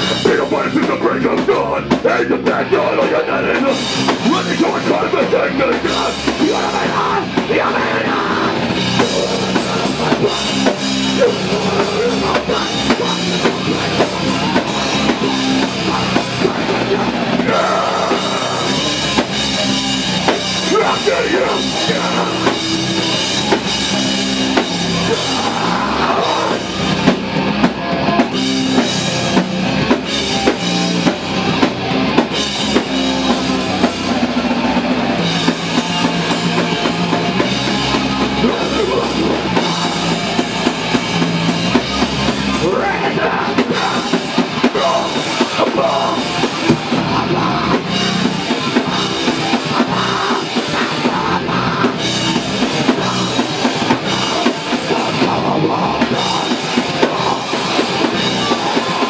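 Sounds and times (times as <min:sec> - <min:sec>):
drum kit drumming: 0:00.0 - 0:59.0
electric guitars and bass: 0:00.0 - 0:59.0.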